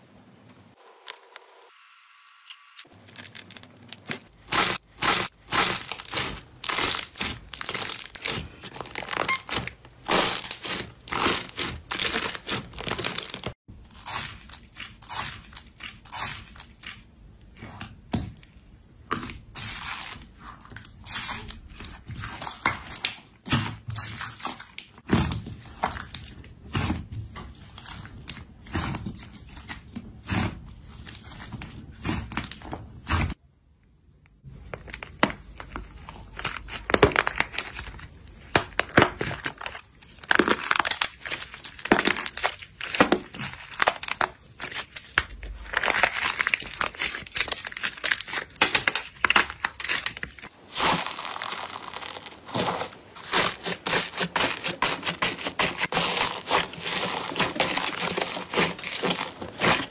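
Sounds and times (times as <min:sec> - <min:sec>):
slime squelching and crackling: 0:02.8 - 0:33.4, 0:34.4 - 0:59.9
stiff slime crunching: 0:02.8 - 0:33.4, 0:34.4 - 0:59.9.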